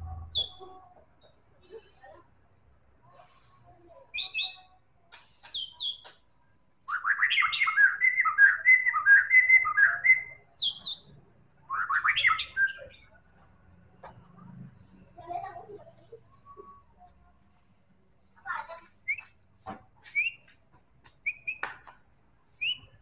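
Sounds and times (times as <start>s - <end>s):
bird singing: 0.0s - 1.8s, 6.8s - 13.2s, 21.2s - 21.6s, 22.4s - 23.0s.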